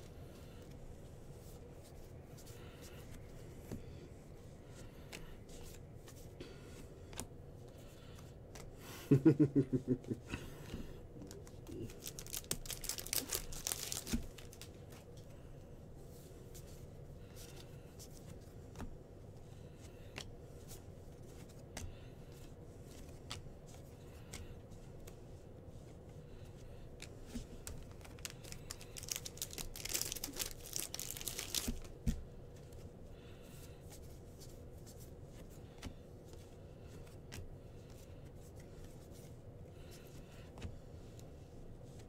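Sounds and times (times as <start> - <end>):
foil wrapper tearing and crinkling: 11.8 - 14.7, 28.0 - 31.9.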